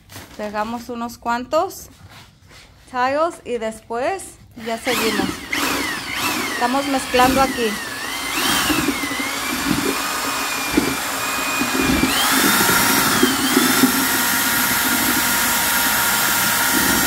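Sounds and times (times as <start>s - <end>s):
drill motor whine mixing mortar: 4.6s - 17.0s.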